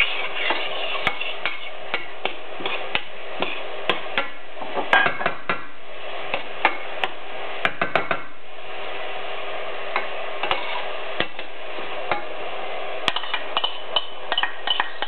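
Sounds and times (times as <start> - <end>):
cabbage sizzling in a pot: 0.0 - 4.4.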